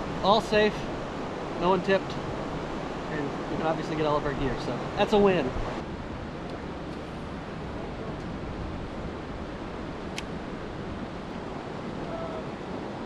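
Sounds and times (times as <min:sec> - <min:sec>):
river water rushing: 0:00.0 - 0:05.8
sharp click: 0:10.1 - 0:10.3.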